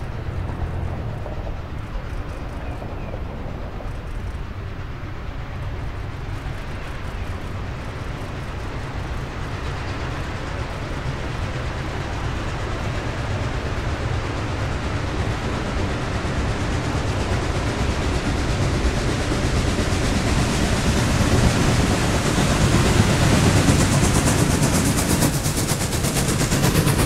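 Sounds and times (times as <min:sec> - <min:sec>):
steam locomotive rumble: 0:00.0 - 0:27.0.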